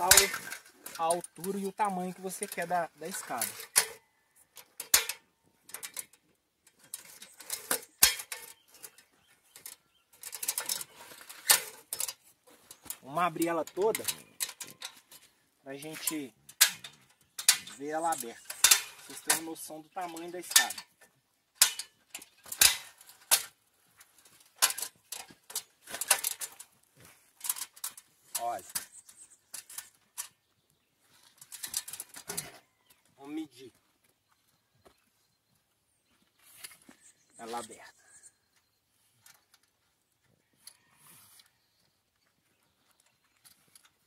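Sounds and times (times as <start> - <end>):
ladder hinge joints clicking: 0.0 - 4.0, 4.6 - 23.6, 24.2 - 26.7.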